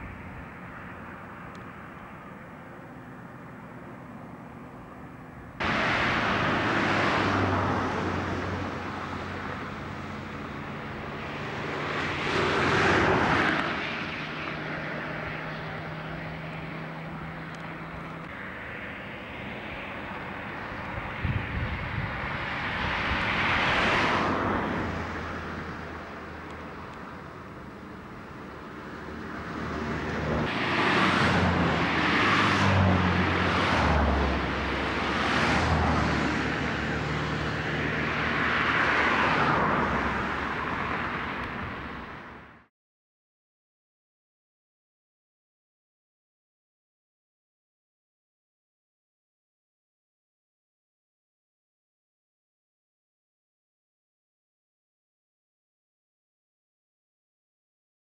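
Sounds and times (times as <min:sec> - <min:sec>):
low engine hum: 0:00.0 - 0:42.7
vehicles passing: 0:00.0 - 0:42.7.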